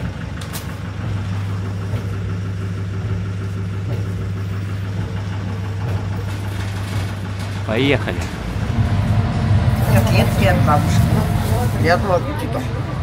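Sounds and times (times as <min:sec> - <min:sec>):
bus engine idling: 0:00.0 - 0:13.0.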